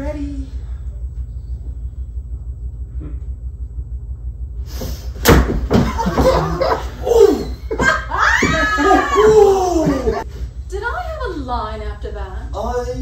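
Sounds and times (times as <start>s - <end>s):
loud cries: 7.0s - 10.2s.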